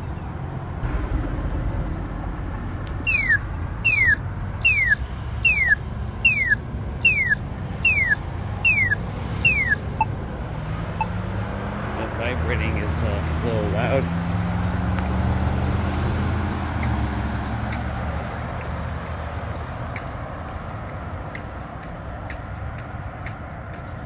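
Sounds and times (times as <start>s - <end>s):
traffic noise: 0.0s - 24.0s
pedestrian signal falling chirps: 3.0s - 10.2s, 10.9s - 11.2s.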